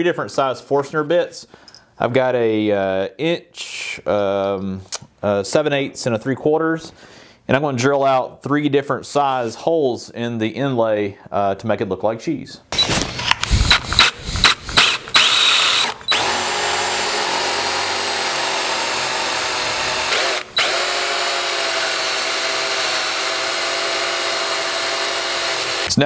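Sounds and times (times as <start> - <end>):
cordless drill boring wood: 12.8 - 26.0.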